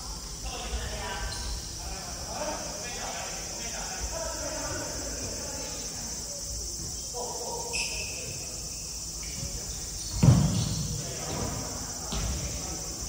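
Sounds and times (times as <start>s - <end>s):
high-pitched insect-like buzz: 0.0s - 13.0s
shoe squeaking on wooden floor: 6.8s - 11.5s.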